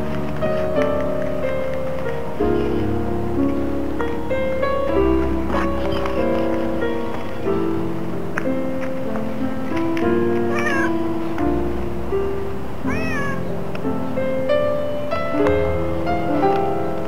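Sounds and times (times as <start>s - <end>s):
music with held notes: 0.0s - 17.0s
cat meowing: 10.5s - 11.0s, 12.8s - 13.5s.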